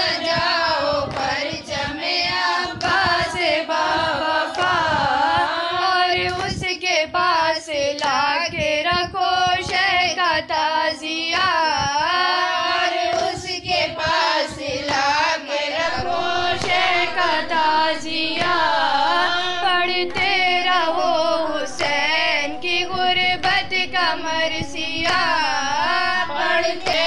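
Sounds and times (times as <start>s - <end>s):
woman singing a lament: 0.0s - 27.0s
steady held drone tone: 15.4s - 27.0s.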